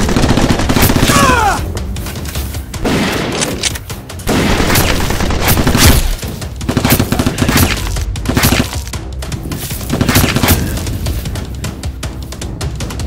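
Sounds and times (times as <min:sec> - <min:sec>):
background music with a beat: 0:04.9 - 0:13.0.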